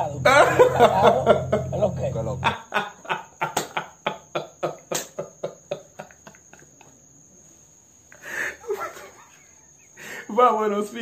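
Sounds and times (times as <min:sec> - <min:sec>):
man laughing hard: 0:00.0 - 0:07.0, 0:08.3 - 0:10.1.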